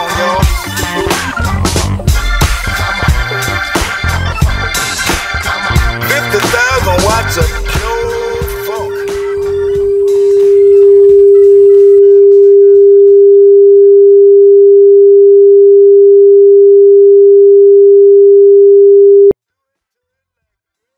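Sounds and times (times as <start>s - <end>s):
electronic pure tone: 7.4s - 19.4s.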